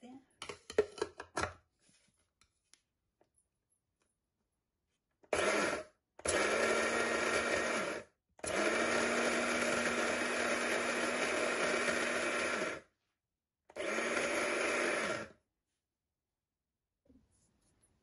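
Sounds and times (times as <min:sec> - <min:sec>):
electric spice grinder running: 0:05.3 - 0:12.9, 0:13.7 - 0:15.4.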